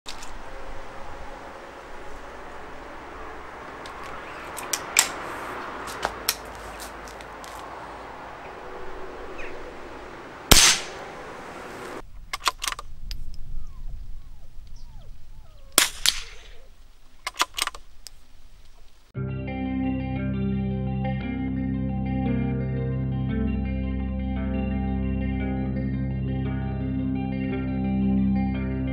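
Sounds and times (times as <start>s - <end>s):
metallic rifle clicks: 3.8s - 5.2s, 12.3s - 13.4s, 15.8s - 16.6s, 17.2s - 18.2s
rifle shot: 10.5s - 11.1s, 15.8s - 16.6s
air rifle shot: 10.5s - 11.2s, 15.8s - 16.6s.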